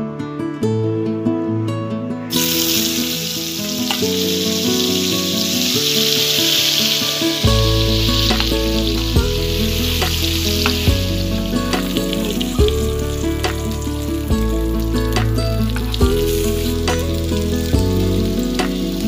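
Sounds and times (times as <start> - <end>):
soft background music: 0.0 - 19.0
vegetables sizzling in hot oil: 2.3 - 19.0
spoon knocking in pan: 7.4 - 14.5.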